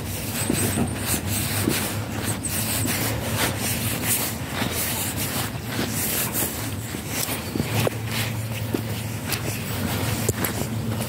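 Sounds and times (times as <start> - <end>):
microphone rubbing and wind: 0.0 - 11.0.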